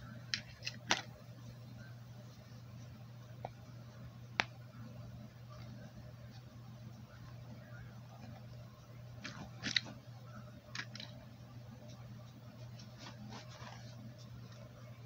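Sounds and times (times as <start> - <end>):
steady low hum: 0.0 - 15.0
toys rustling and clicking: 0.3 - 1.1, 9.2 - 10.0, 10.6 - 11.2.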